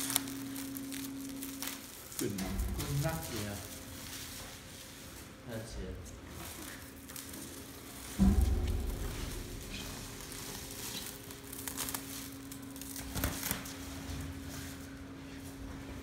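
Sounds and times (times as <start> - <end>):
plastic wrap film crackling: 0.0 - 5.5, 6.2 - 8.2, 9.6 - 14.8
steady low hum: 0.0 - 16.0.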